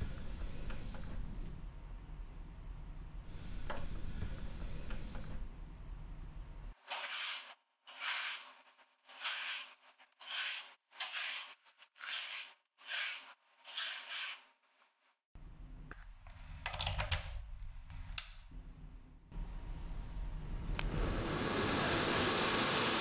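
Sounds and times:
brush scrubbing plastic cover: 6.8 - 15.0.

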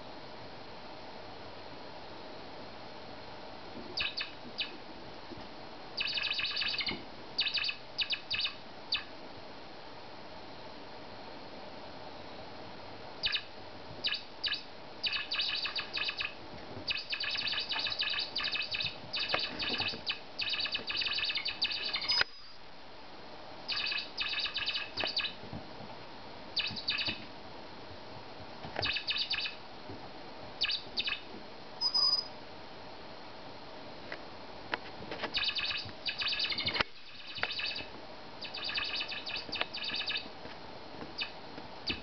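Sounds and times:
squeaky toy squeaking: 31.8 - 32.3.

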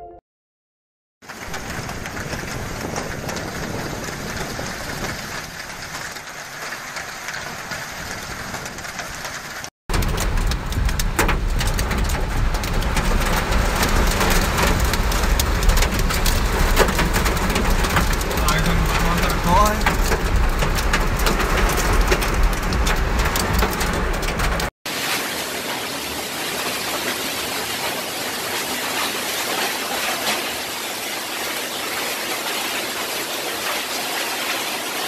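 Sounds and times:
heavy rain downpour: 1.2 - 35.0
hailstones on a car windshield: 1.3 - 32.1
low rumble: 9.9 - 24.7.

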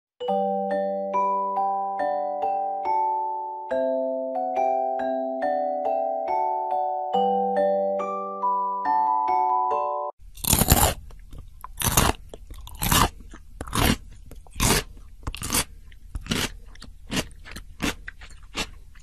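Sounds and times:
mallet percussion music: 0.2 - 10.1
hamster crunching carrot: 10.3 - 19.0.

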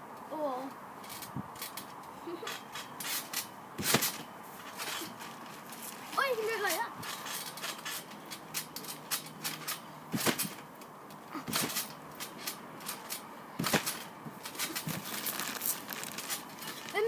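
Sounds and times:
trampoline clicks and rattles: 0.9 - 17.0
thumps of landings on trampoline: 2.5 - 6.0, 7.0 - 15.4.

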